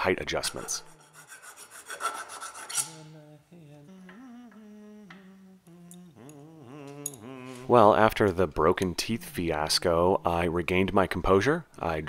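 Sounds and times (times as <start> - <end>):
hand file rasping on steel: 0.3 - 3.1.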